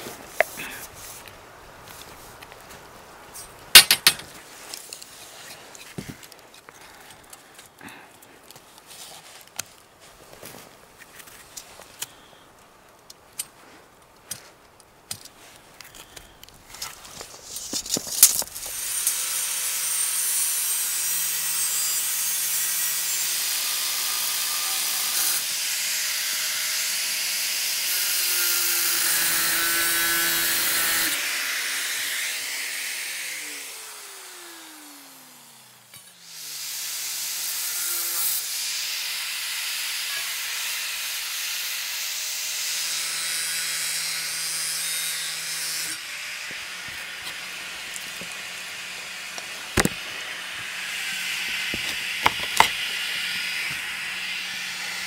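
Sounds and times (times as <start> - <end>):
metal pipes clicking: 3.8 - 4.3
angle grinder cutting metal: 18.7 - 55.0.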